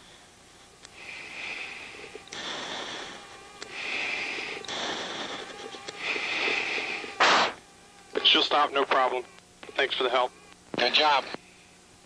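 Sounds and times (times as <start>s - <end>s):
breathing through oxygen mask: 0.0s - 7.6s.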